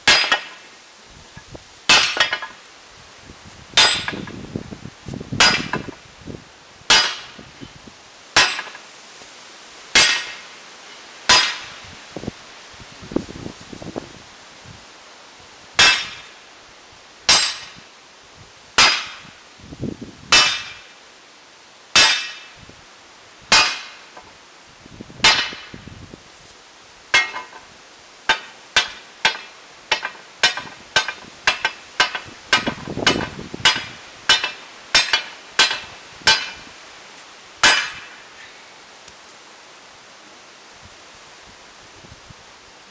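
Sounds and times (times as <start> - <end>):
hammer striking steel on anvil: 0.0 - 0.6, 1.9 - 2.6, 3.8 - 4.3, 5.4 - 5.9, 6.9 - 7.4, 8.4 - 8.8, 10.0 - 10.4, 11.3 - 11.8, 15.8 - 16.3, 17.3 - 17.8, 18.8 - 19.2, 20.3 - 20.9, 22.0 - 22.5, 23.5 - 24.0, 25.2 - 25.7, 27.2 - 27.6, 28.3 - 36.6, 37.6 - 38.2.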